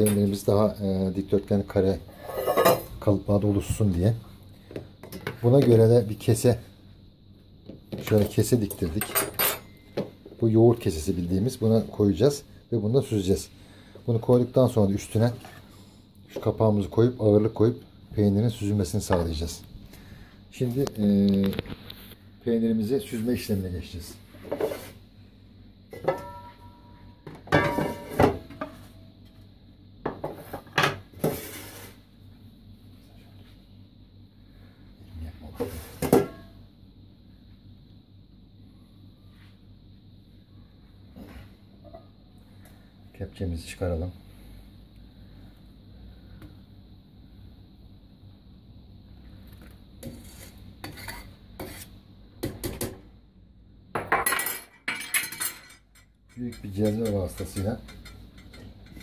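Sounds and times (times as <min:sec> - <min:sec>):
metal ladle scraping pot: 0:02.1 - 0:02.9, 0:50.0 - 0:51.9
metal pots clanking: 0:26.0 - 0:26.8, 0:27.5 - 0:28.7.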